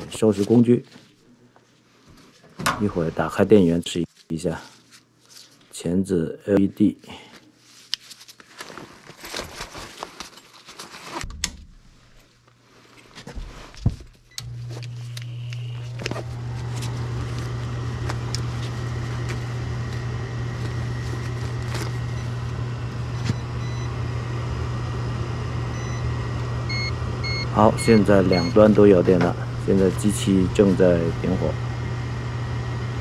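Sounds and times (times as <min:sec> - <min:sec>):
furnace motor humming: 0:14.3 - 0:33.0
short high beeps: 0:26.7 - 0:28.6.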